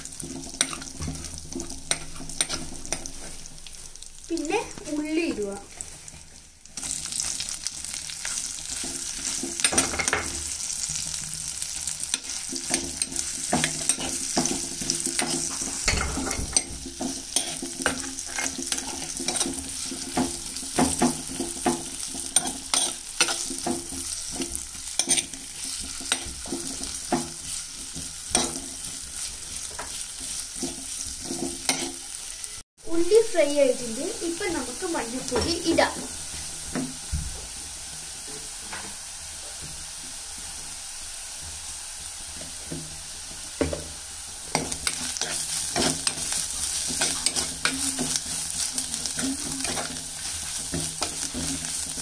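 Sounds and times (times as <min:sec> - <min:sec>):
onions sizzling in hot oil: 0:00.0 - 0:52.0
metal spoon scraping a pot: 0:12.1 - 0:20.0, 0:22.3 - 0:27.0.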